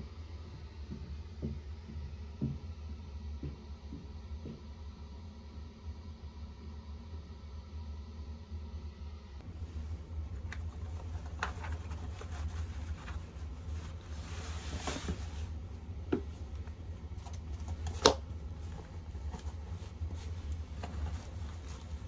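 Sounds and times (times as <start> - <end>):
low hum: 0.0 - 22.0
clothes and shoes rustling: 9.4 - 22.0.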